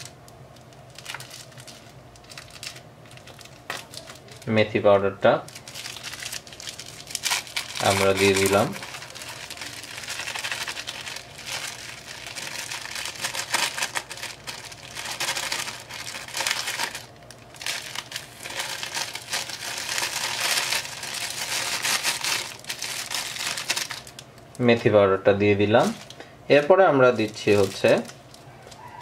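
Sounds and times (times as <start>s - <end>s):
plastic packet crinkling: 0.0s - 4.7s, 5.4s - 24.7s, 25.8s - 29.0s.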